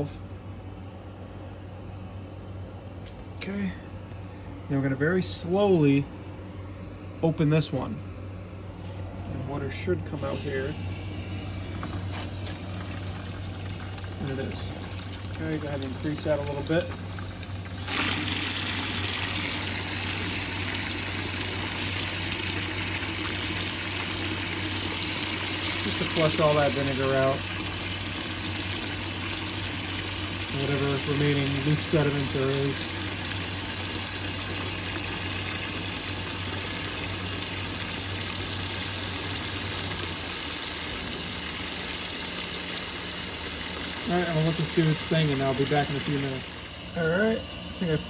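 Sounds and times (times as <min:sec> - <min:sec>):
water gushing into a bucket: 0:10.2 - 0:47.0.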